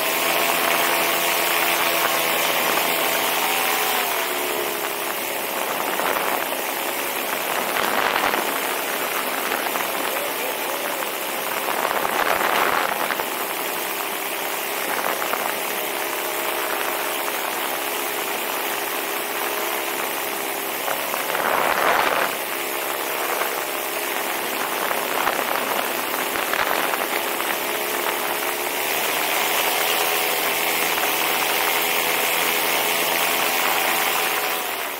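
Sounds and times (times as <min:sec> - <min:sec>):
paramotor engine and propeller: 0:00.0 - 0:34.9
wind buffeting microphone: 0:04.6 - 0:17.4.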